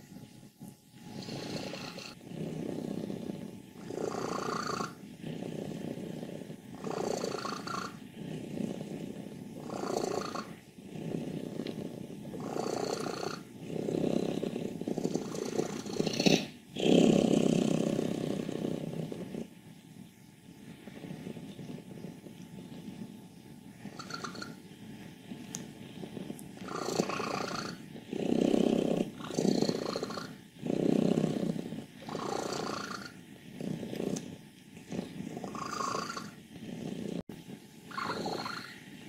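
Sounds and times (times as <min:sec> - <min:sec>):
cat purring: 0:00.0 - 0:39.0.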